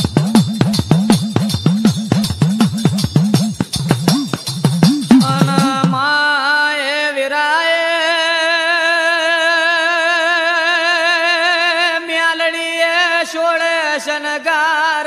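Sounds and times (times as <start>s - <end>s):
percussion: 0.0s - 7.0s.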